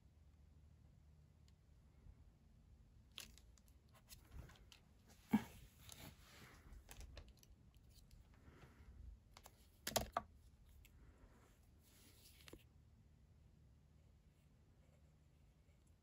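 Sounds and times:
clicks and taps of paper handling: 9.3 - 10.4.

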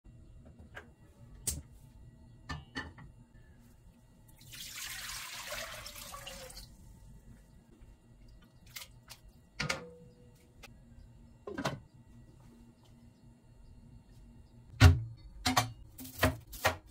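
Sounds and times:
water pouring into a pot: 4.4 - 6.7.

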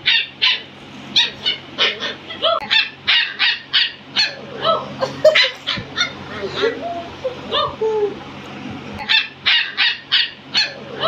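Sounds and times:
puppy yapping: 0.0 - 6.8, 9.0 - 11.0.

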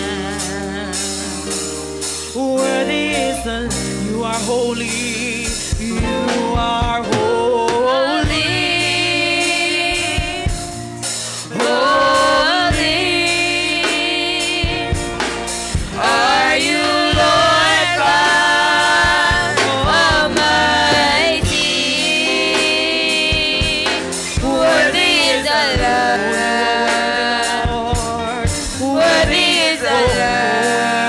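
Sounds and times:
band with drums and electric guitar: 0.0 - 31.0
singers holding long notes: 6.3 - 31.0.

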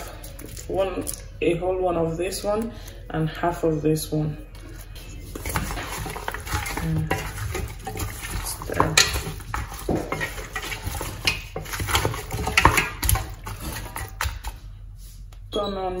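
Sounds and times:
wet squelches of stirring: 0.0 - 1.5, 4.3 - 15.6
spatula scraping metal pot: 4.7 - 14.6.

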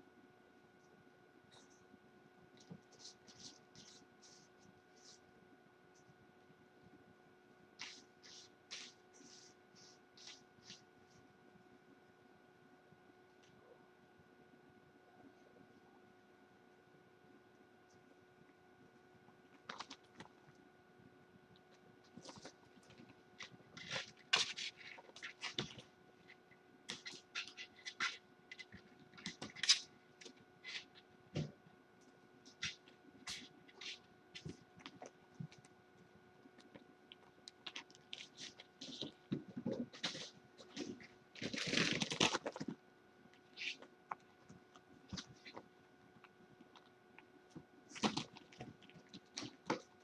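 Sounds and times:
faint steady hum: 0.0 - 50.0
kitten claws scratching carpet: 2.6 - 5.3, 7.8 - 11.2.

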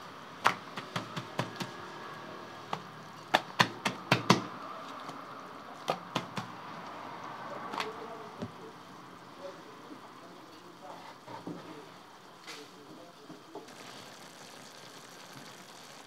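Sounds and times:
faint steady hiss: 6.8 - 16.0.

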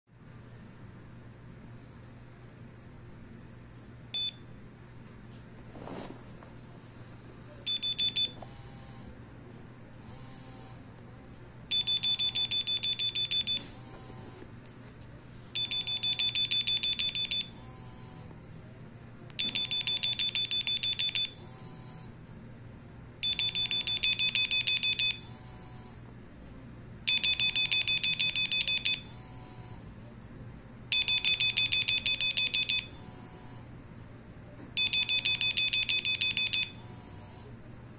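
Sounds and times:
phone alarm beeping: 4.2 - 4.4, 7.7 - 8.4, 11.7 - 13.8, 15.6 - 17.6, 19.4 - 21.4, 23.2 - 25.3, 27.1 - 29.2, 30.9 - 33.1, 34.8 - 36.9.

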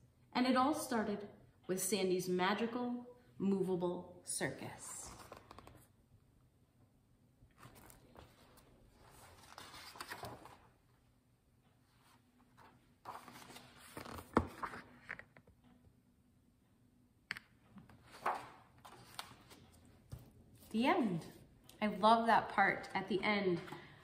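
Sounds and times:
book pages rustling: 5.1 - 5.9, 7.5 - 10.8, 11.9 - 15.5, 17.8 - 20.8.

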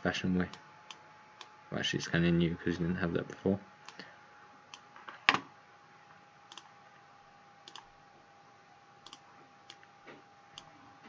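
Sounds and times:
faint steady whine: 0.0 - 11.0
computer mouse clicks: 7.7 - 7.9, 9.0 - 9.9.

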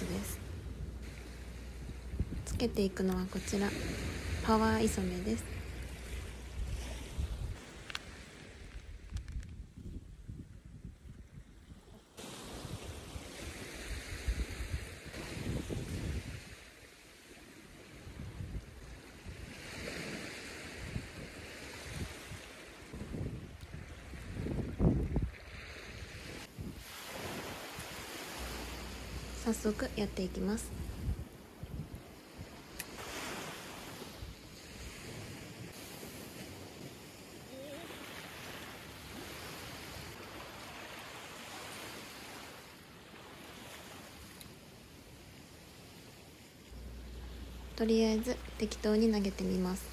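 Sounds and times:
wind buffeting microphone: 0.0 - 16.8, 17.8 - 40.3
small waves washing onto beach: 0.0 - 49.9.

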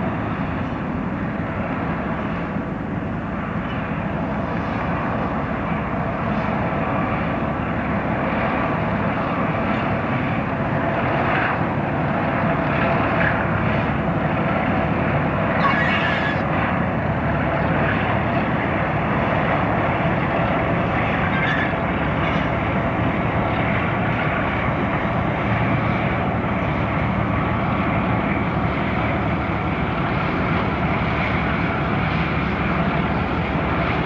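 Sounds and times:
diesel locomotive engine droning: 0.0 - 34.0.

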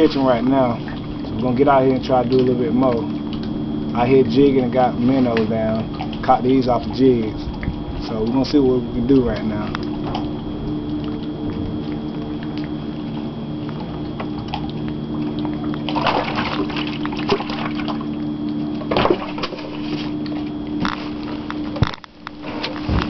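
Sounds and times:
steady low hum: 0.0 - 23.0
water sloshing and splashing: 0.0 - 23.0.

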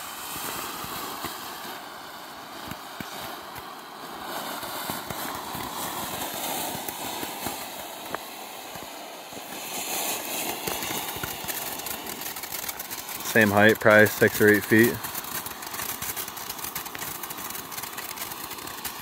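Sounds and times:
ground fountain firework hissing: 0.0 - 19.0
small crackles: 4.8 - 19.0.

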